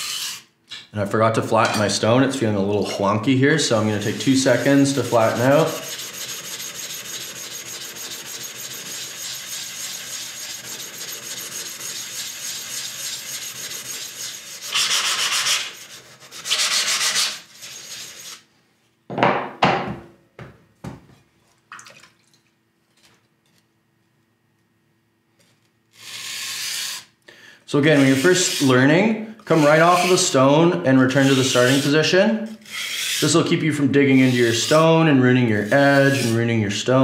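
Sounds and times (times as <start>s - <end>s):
stone grinding on abrasive surface: 0.0s - 0.4s, 3.9s - 18.4s, 27.9s - 28.7s, 29.5s - 30.3s, 31.1s - 32.0s, 32.6s - 33.4s, 34.1s - 34.9s, 35.6s - 36.4s
tools knocking when set down: 19.1s - 20.1s.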